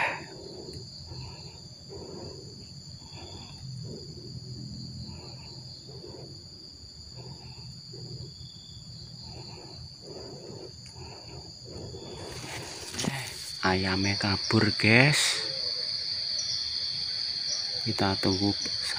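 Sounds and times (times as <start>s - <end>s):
soft low pulses: 0.0s - 13.6s
high-pitched insect chorus: 0.0s - 18.9s.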